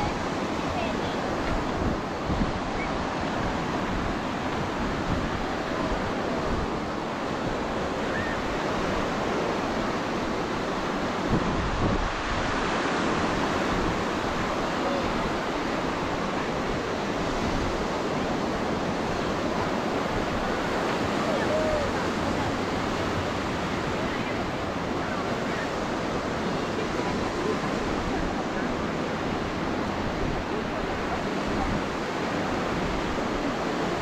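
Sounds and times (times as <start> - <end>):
small waves breaking: 0.0 - 34.0
wind rumbling on microphone: 0.0 - 34.0
distant crowd voices: 18.0 - 34.0.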